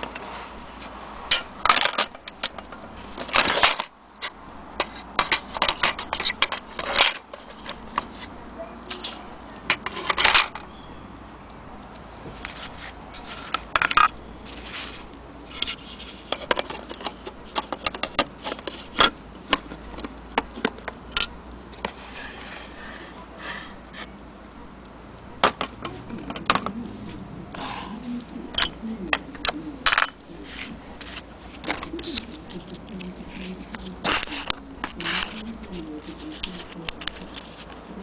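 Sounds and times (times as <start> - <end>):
small metal parts being handled: 0.8 - 10.8, 12.4 - 22.3, 29.4 - 37.9.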